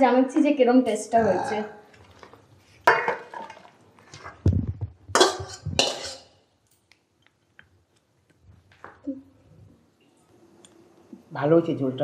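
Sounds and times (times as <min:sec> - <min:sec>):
pots and metal utensils clattering: 0:02.0 - 0:04.4, 0:05.1 - 0:06.4.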